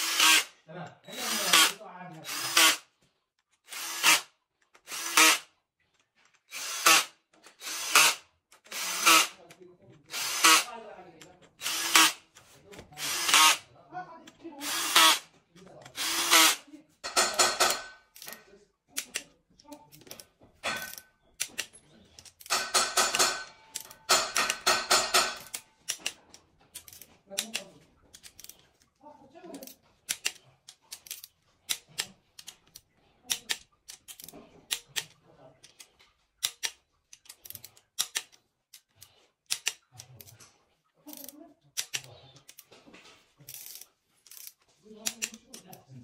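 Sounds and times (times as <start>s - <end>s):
cordless drill driving bolts: 0.0s - 0.5s, 1.1s - 2.8s, 3.7s - 5.4s, 6.5s - 9.3s, 10.1s - 10.7s, 11.6s - 12.2s, 13.0s - 13.6s, 14.6s - 15.2s, 16.0s - 17.9s
ratchet wrench clicking: 39.5s - 40.3s, 43.5s - 45.4s.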